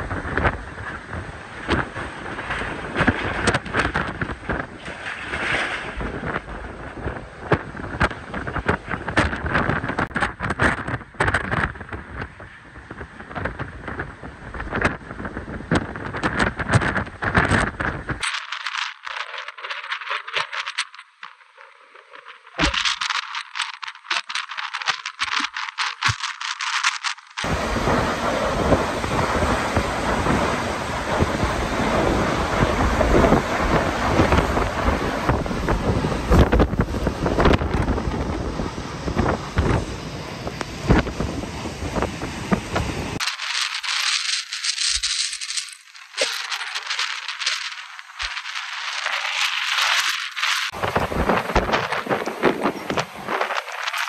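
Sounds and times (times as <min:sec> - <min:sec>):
deep wind buffets: 0:00.0 - 0:18.3, 0:27.4 - 0:54.0
wind and rain battering microphone: 0:00.0 - 0:54.0.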